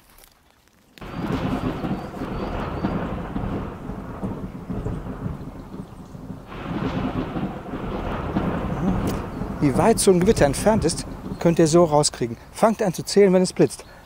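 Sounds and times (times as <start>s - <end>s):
rolling thunder: 1.0s - 12.0s.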